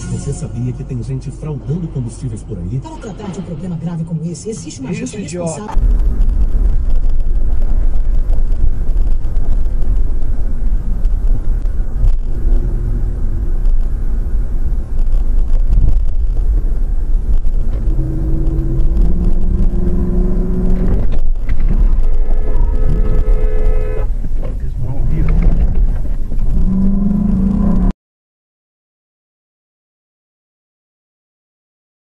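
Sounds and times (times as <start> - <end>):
car engine and road noise: 0.0 - 27.9
engine note rising: 5.7 - 27.9.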